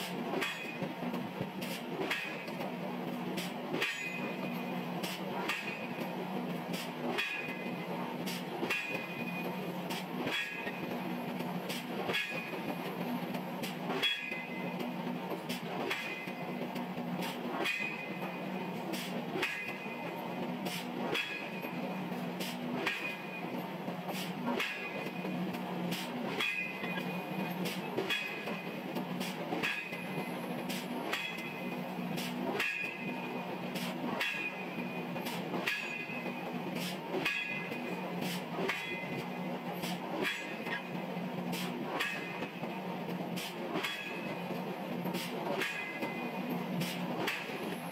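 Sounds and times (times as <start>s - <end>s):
forging machine metallic clank: 1.6s - 2.6s, 3.4s - 6.0s, 7.1s - 7.7s, 8.3s - 9.4s, 12.0s - 12.6s, 13.9s - 14.6s, 18.9s - 20.1s, 20.7s - 21.8s, 25.9s - 28.6s, 29.2s - 30.1s, 32.2s - 38.0s, 39.8s - 40.8s, 41.6s - 42.5s, 43.4s - 44.4s, 45.2s - 46.2s, 46.8s - 47.6s.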